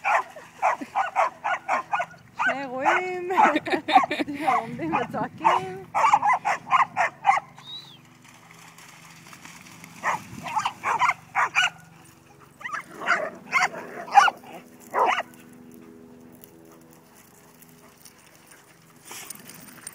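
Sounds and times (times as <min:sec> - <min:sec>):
dog barking: 0:00.0 - 0:07.5, 0:10.0 - 0:11.8, 0:12.6 - 0:15.3.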